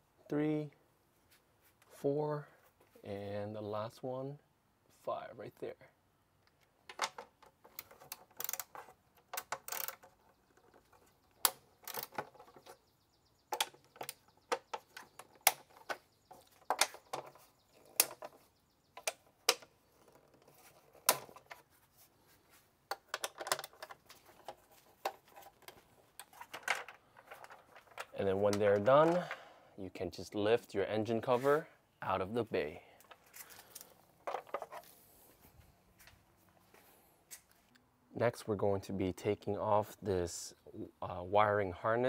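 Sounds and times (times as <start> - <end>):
hand ratchet clicking: 9.4 - 10.0.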